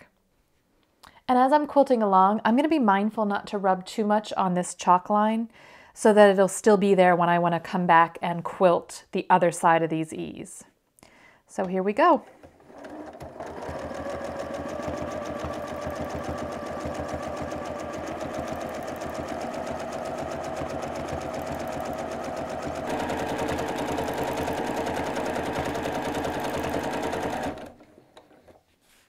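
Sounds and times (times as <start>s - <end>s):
sewing machine stitching fast: 12.6s - 28.0s.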